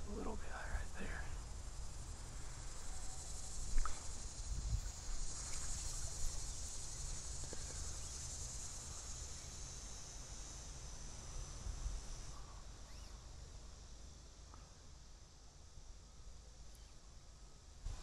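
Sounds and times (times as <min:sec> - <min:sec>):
insects buzzing: 0:00.0 - 0:18.0.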